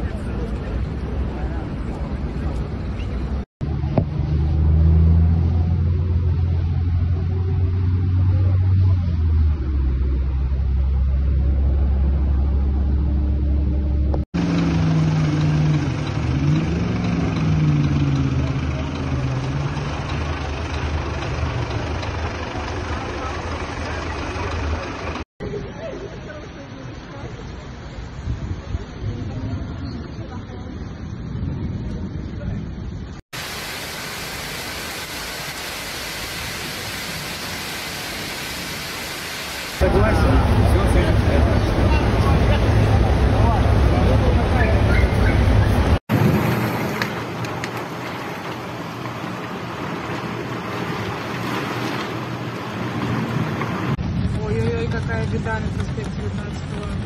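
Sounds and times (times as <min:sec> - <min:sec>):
bus engine rumble: 0:00.0 - 0:33.6, 0:39.8 - 0:57.0
floodwater rushing: 0:33.4 - 0:54.0.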